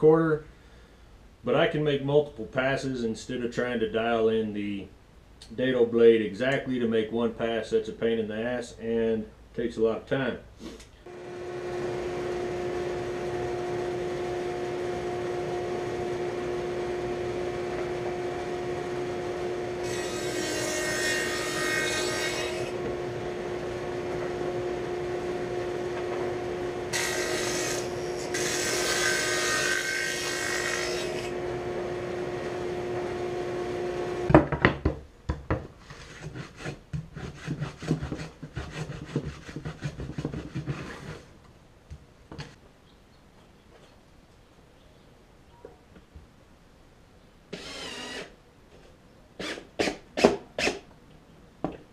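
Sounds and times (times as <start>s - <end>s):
table saw motor hum: 11.1s - 34.3s, 47.6s - 48.3s
router plane scraping wood: 19.8s - 22.8s, 35.8s - 41.3s.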